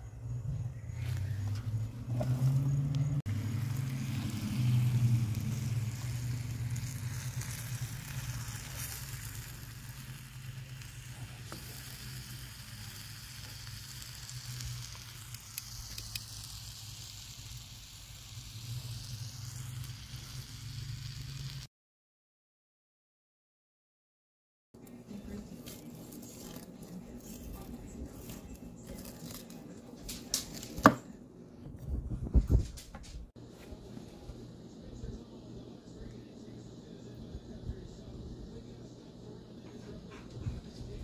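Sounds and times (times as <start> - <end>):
meat sizzling in a skillet: 3.3 - 21.7
steady low hum: 31.0 - 41.0.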